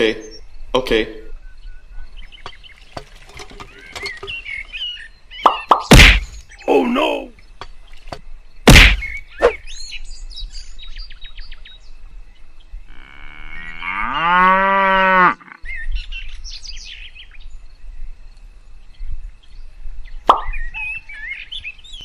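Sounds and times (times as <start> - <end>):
birds chirping: 0.0 - 14.4
cow mooing: 12.9 - 15.6.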